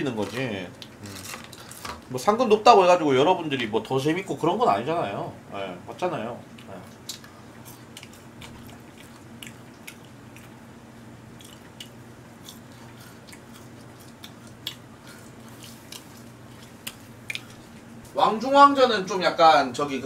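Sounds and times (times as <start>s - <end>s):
chewing french fries: 0.0s - 2.0s, 6.4s - 18.2s
steady low hum: 0.0s - 20.0s
mouth clicks and smacks: 11.4s - 14.9s, 15.9s - 17.6s.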